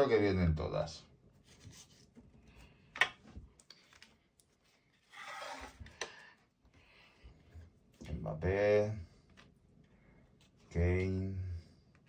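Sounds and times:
cards rustling: 1.4s - 6.3s.

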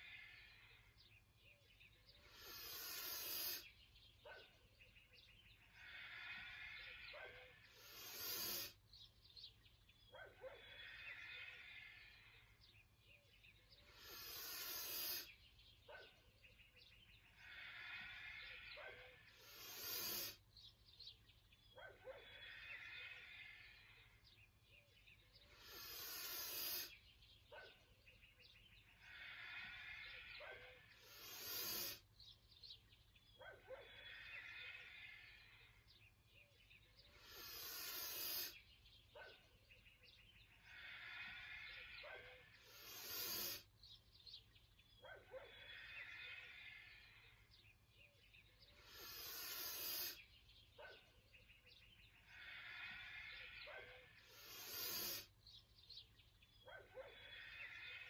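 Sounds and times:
person breathing through the nose: 2.1s - 3.8s, 5.8s - 9.0s, 13.7s - 15.4s, 17.3s - 20.5s, 25.4s - 27.1s, 29.0s - 32.2s, 37.0s - 38.8s, 40.6s - 44.0s, 48.6s - 50.4s, 52.3s - 55.4s.

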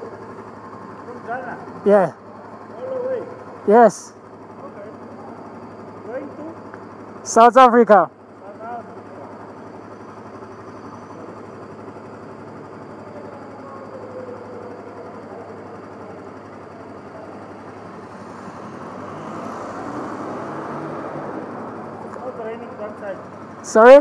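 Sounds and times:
engine idling: 0.0s - 24.0s
road noise: 0.0s - 24.0s
car passing close by: 18.0s - 22.3s.

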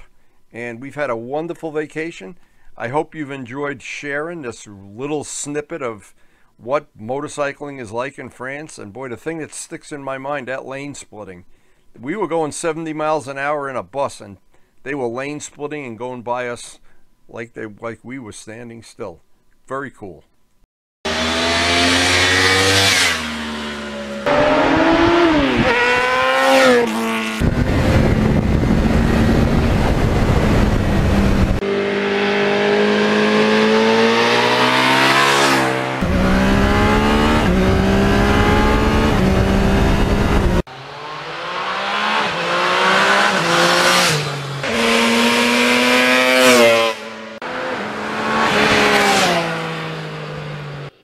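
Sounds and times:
motorcycle engines revving: 21.1s - 51.0s.

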